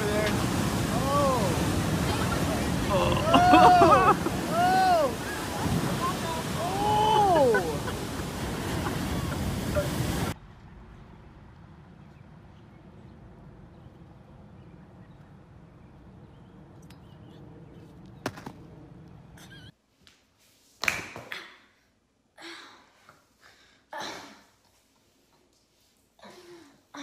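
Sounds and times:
ocean surf breaking: 0.0s - 10.9s.

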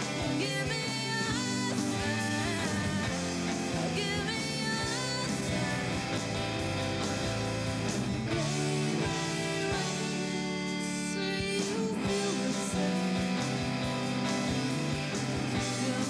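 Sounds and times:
drums: 0.0s - 16.0s
electric guitar: 0.0s - 16.0s
woman singing: 0.2s - 6.2s, 8.3s - 13.2s, 15.5s - 16.0s.

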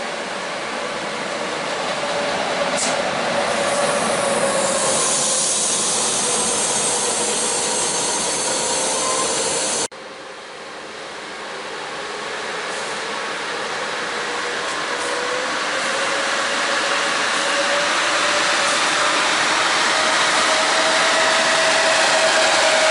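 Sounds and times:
approaching train rumble: 0.0s - 22.9s
train wheels clattering on rail: 1.6s - 8.6s
high wheel squeal: 3.5s - 9.9s.

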